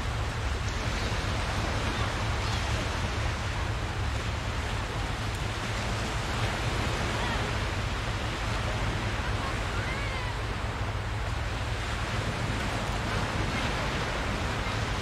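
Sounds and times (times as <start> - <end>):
surf: 0.0 - 15.0
wind: 0.0 - 15.0
distant children calling out: 9.1 - 10.7.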